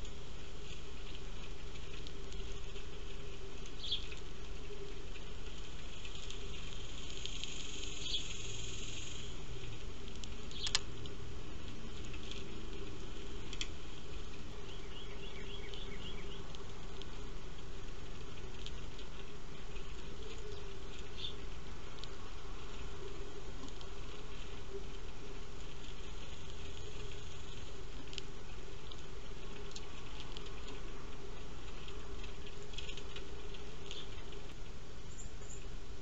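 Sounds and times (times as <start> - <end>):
birds pecking seed: 0.0 - 36.0
sparrow chirps: 3.8 - 4.2, 7.6 - 9.2, 10.5 - 10.8, 14.6 - 16.5.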